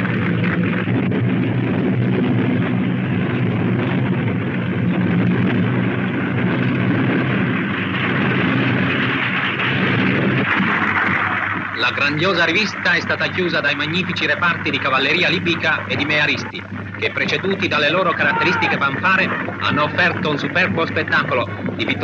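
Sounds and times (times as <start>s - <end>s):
low hum and noise: 0.0s - 22.0s
military vehicle engines droning: 0.0s - 22.0s.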